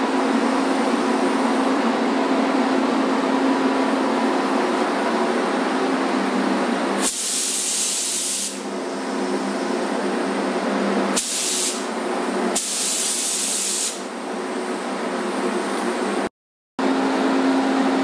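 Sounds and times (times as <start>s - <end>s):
steady background hum: 0.0s - 16.3s
paint spray gun hissing: 7.0s - 8.6s, 11.2s - 11.9s, 12.6s - 14.0s.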